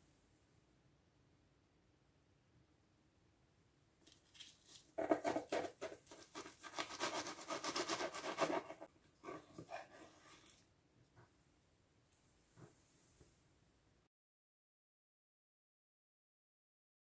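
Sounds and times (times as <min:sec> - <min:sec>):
knife sawing through crisp crust: 0:04.7 - 0:10.6.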